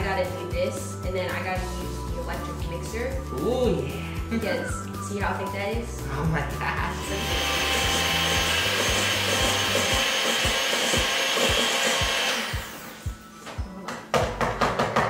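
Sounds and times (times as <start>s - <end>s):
electric hand mixer running: 6.2s - 13.3s.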